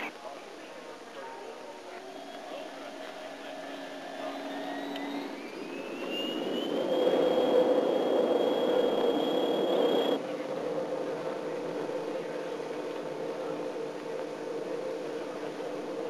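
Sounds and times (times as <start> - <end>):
low cabin hum: 1.6 - 16.0
jet engines whining: 1.8 - 16.0
rushing noise: 2.0 - 10.3.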